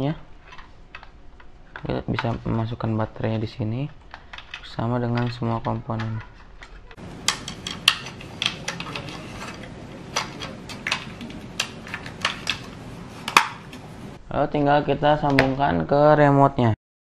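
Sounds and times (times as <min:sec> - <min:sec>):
plastic clicks and taps: 0:06.6 - 0:13.8.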